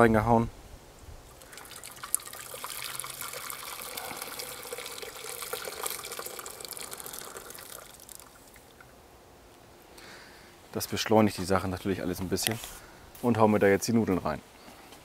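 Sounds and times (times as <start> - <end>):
hot water pouring into a pot: 1.4 - 8.7.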